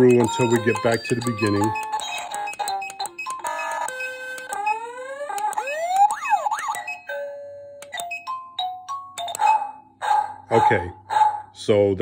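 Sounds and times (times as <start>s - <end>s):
steady beeps: 0.0s - 4.8s
siren-like warble: 3.4s - 7.0s.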